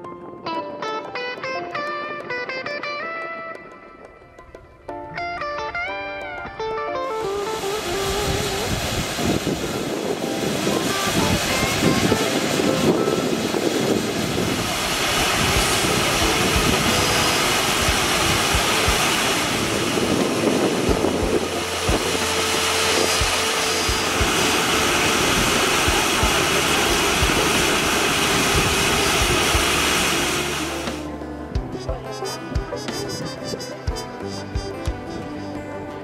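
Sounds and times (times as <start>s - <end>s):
steam venting with rushing hiss: 7.2s - 31.1s.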